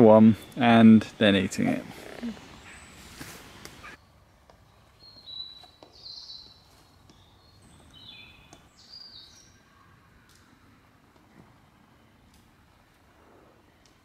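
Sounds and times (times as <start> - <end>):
faint birdsong whistles: 2.2 - 10.5.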